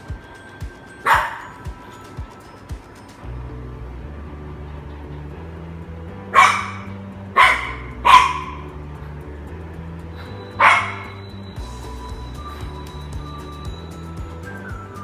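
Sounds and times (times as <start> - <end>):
soft background music: 0.0 - 15.0
puppy yapping: 1.0 - 1.6, 6.3 - 8.7, 10.2 - 11.3.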